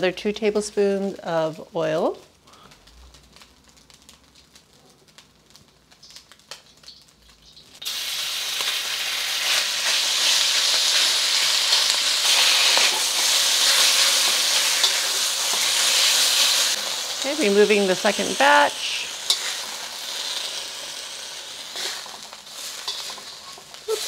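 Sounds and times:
faint ticks of hot oil: 2.6 - 7.8
beef sizzling in oil: 3.1 - 24.0.

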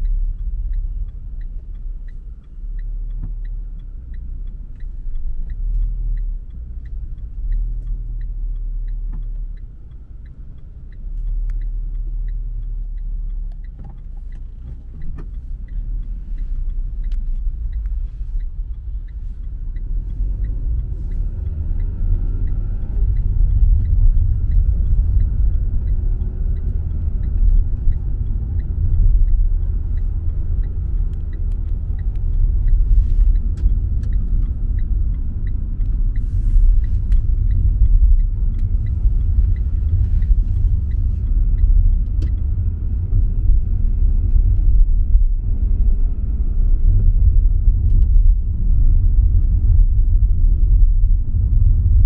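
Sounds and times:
car engine and tyres rumbling: 0.0 - 52.0
faint regular ticking: 0.0 - 52.0.

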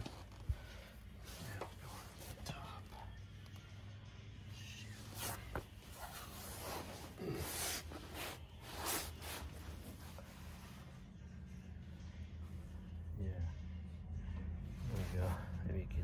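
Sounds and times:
clothing rustling: 0.0 - 3.7, 4.8 - 11.0.

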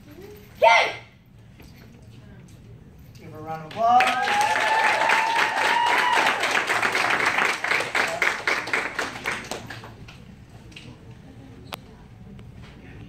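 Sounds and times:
audience clapping: 3.7 - 10.2
person cheering: 3.9 - 6.6.

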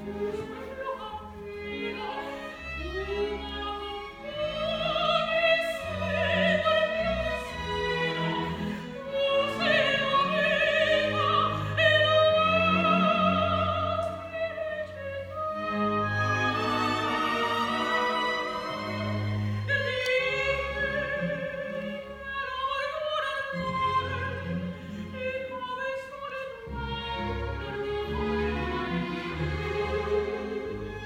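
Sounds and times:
operatic soprano singing: 0.0 - 30.9
string chamber orchestra: 0.0 - 31.0.

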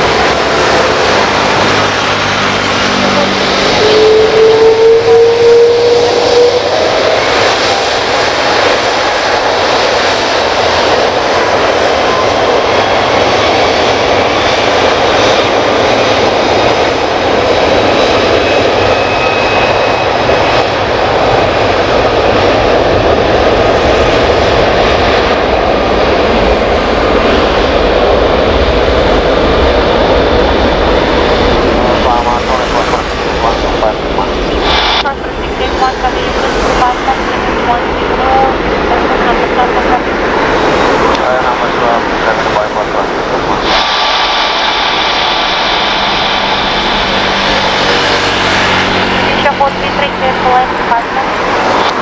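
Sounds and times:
jet engines at high power: 0.0 - 52.0
high fan whine: 40.8 - 52.0.

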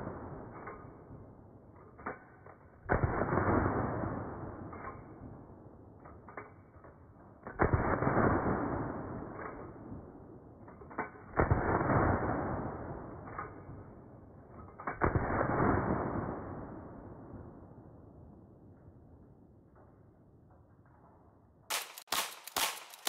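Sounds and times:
rifle shots echoing: 21.7 - 23.0.

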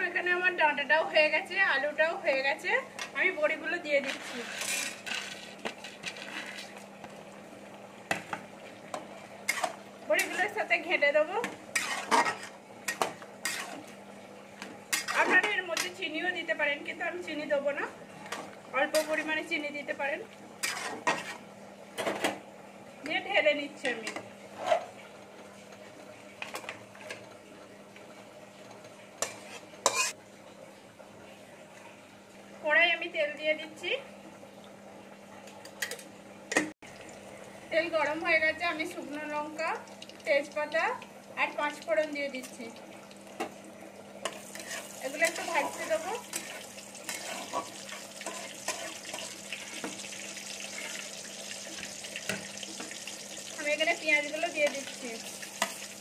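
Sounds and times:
spices sizzling in hot oil: 8.0 - 22.1, 29.1 - 30.2, 36.9 - 56.0
metal cookware clinking and scraping: 11.8 - 13.8, 14.9 - 16.0, 29.2 - 30.2, 44.3 - 49.3.

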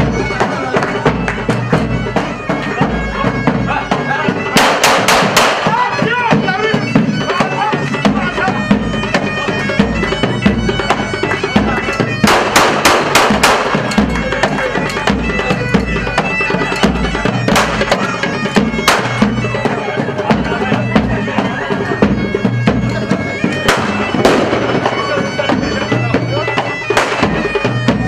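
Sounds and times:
steady drum beat: 0.0 - 28.0
sharp gunshot cracks: 4.6 - 5.6, 12.3 - 13.7.

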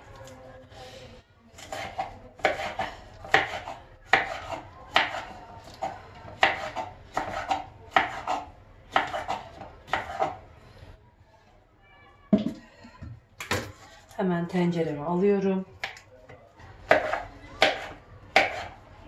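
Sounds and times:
knife slicing peppers on board: 1.6 - 10.4, 16.9 - 18.8.

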